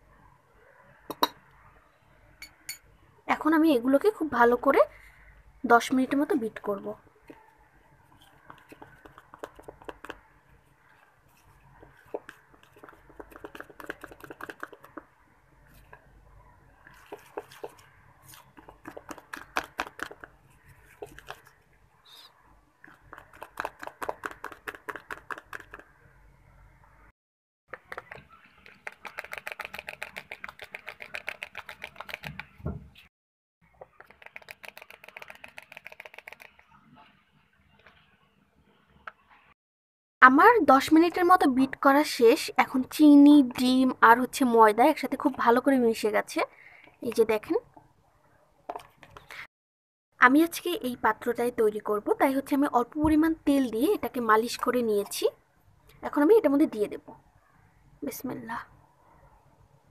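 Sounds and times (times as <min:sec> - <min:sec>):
utensil tapping and scraping bowl: 0:08.3 - 0:10.2, 0:11.8 - 0:15.1, 0:16.9 - 0:17.9, 0:18.5 - 0:21.5, 0:23.0 - 0:25.9.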